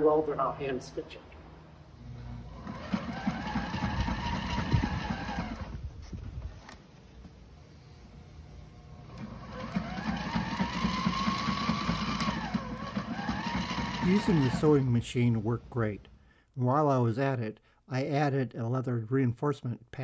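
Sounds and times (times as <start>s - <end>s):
sewing machine motor whining: 2.0s - 5.8s, 8.9s - 15.0s.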